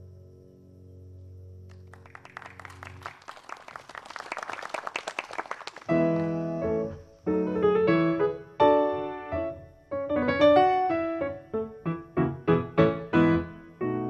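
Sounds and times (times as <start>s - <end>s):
grand piano chords: 0.0s - 3.2s, 5.8s - 14.0s
audience applause: 1.7s - 6.4s.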